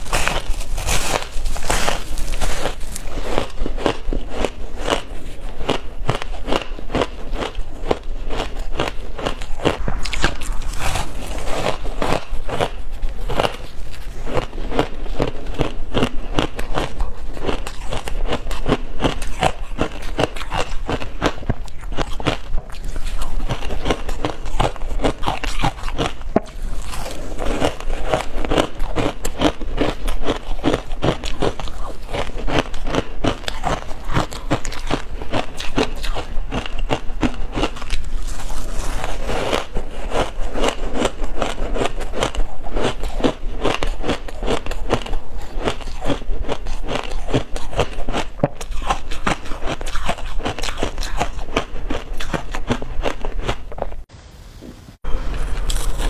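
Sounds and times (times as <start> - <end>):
ice crunching between teeth: 0.0 - 54.1, 55.3 - 56.0.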